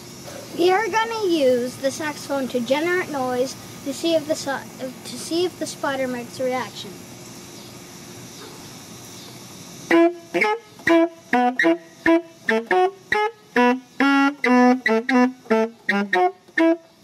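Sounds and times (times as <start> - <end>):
background hiss: 0.0 - 17.0
saxophone playing short notes: 9.9 - 16.9.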